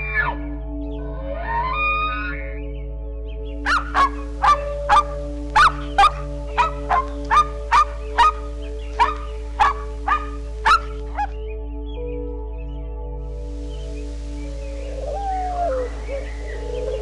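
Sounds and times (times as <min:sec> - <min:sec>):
soft background music: 0:00.0 - 0:17.0
dog barking: 0:03.6 - 0:11.3.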